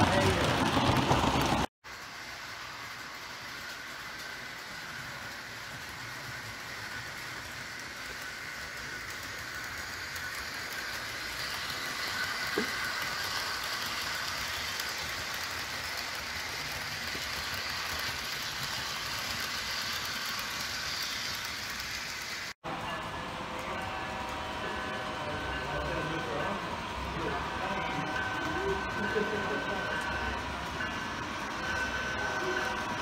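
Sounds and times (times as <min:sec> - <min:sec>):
model train motor whir: 0:00.0 - 0:22.6
wheels rolling on rails: 0:00.0 - 0:22.6.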